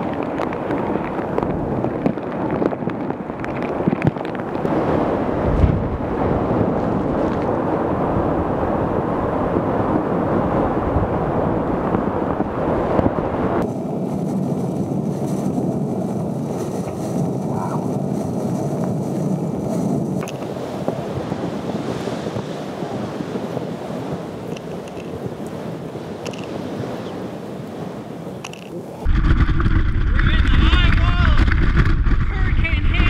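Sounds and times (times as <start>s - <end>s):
strong wind roaring: 0.0s - 33.0s
waves breaking: 0.0s - 33.0s
wind buffeting microphone: 0.0s - 33.0s.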